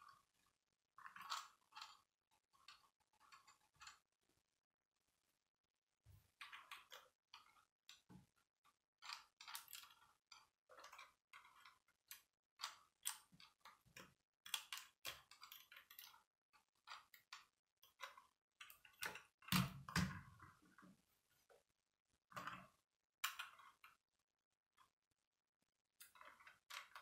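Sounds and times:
plastic toy clicking and rattling: 1.0s - 4.0s, 9.0s - 20.1s, 26.0s - 27.0s.

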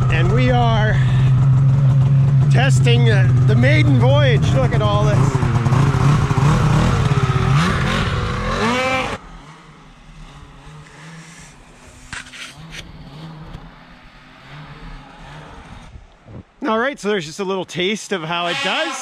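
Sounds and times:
snowmobile engine revving: 0.0s - 19.0s.

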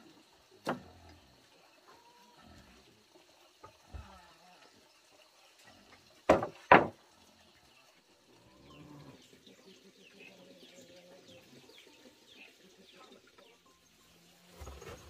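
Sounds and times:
wooden plank knocking on boards: 6.3s - 7.0s.

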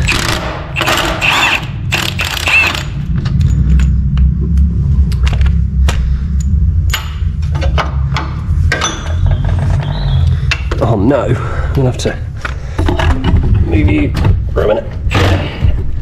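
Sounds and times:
sharp knocks and clicks: 6.9s - 9.9s.

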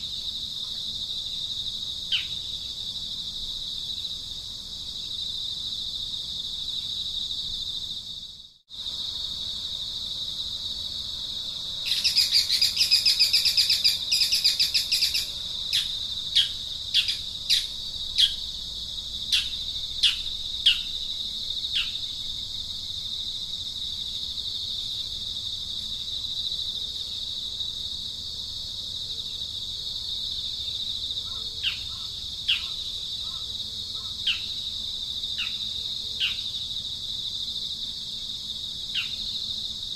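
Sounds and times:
high-pitched insect drone: 0.0s - 28.6s
birds chattering song: 11.9s - 18.4s, 31.3s - 34.6s.

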